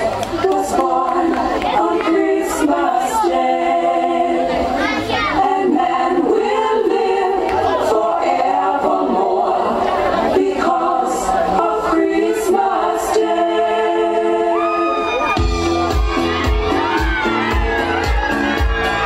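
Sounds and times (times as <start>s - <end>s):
children singing in chorus: 0.0s - 14.6s.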